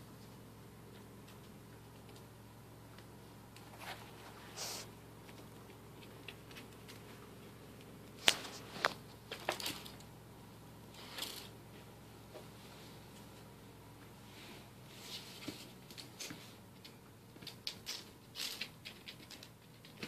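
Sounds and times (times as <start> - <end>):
faint steady hum: 0.0 - 20.0
kittens playing clicks and taps: 0.2 - 10.1, 15.3 - 20.0.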